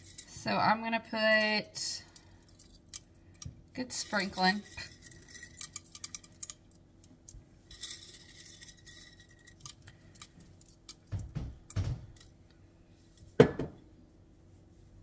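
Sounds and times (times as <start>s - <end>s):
glass jar set down: 13.4s - 13.8s.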